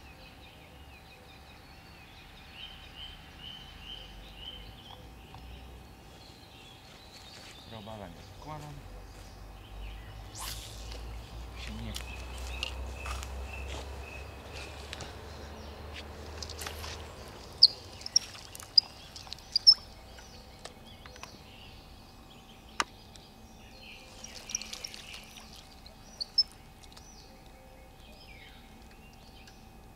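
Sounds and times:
birds chirping: 0.0s - 29.9s
faint outdoor hush: 0.0s - 29.9s.

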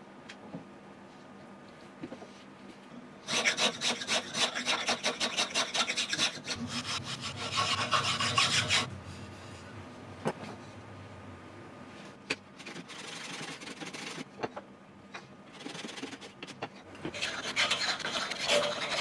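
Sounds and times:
cutting tool scraping wood: 3.3s - 8.9s, 17.1s - 19.0s.

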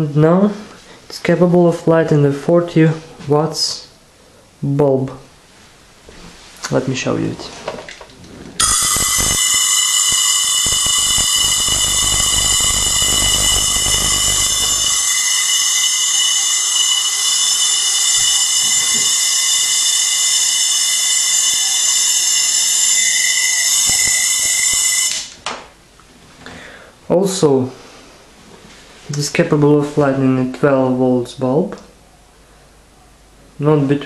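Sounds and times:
spark crackling with low rumble: 8.6s - 15.1s
spark gap buzzing hiss: 8.6s - 25.3s.

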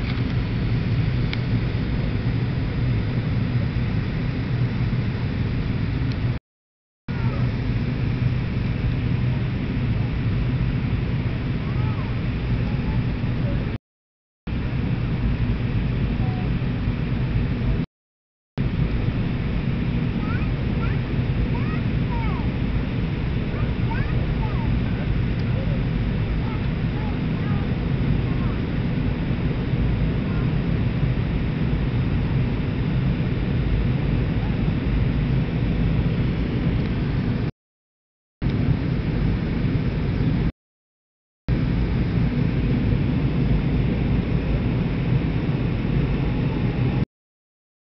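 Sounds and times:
jet engine roar in cabin: 0.0s - 6.4s, 7.1s - 13.8s, 14.5s - 17.9s, 18.6s - 37.5s, 38.4s - 40.5s, 41.5s - 47.0s
rushing air: 18.6s - 37.5s.

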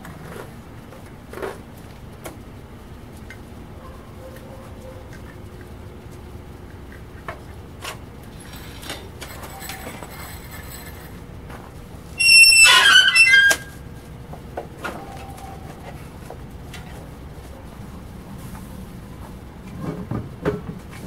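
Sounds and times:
furnace burner rumbling: 0.0s - 21.0s.

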